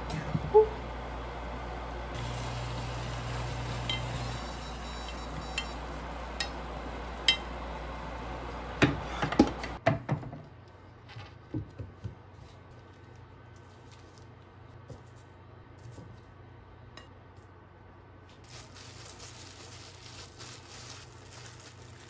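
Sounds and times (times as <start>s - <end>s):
meat frying with a hiss: 2.2s - 4.6s.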